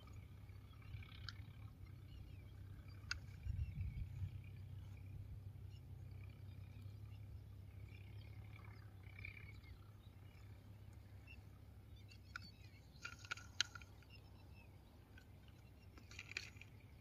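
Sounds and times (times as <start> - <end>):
faint bird chirps: 0.0 - 17.0
low steady hum: 0.0 - 17.0
toy tractor parts clicking: 12.1 - 14.2, 15.1 - 17.0.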